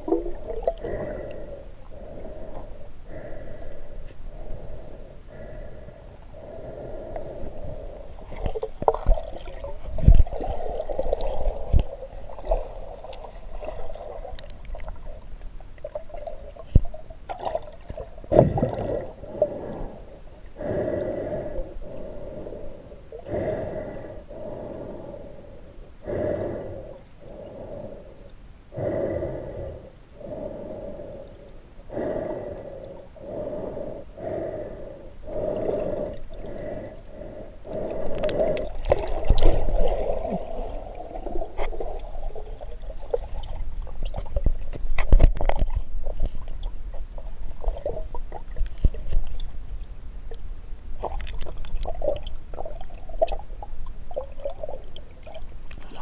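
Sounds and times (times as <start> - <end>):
water churning: 0.0 - 2.6, 15.8 - 19.8, 35.3 - 44.6
breathing through a snorkel: 0.1 - 8.6, 18.7 - 42.4.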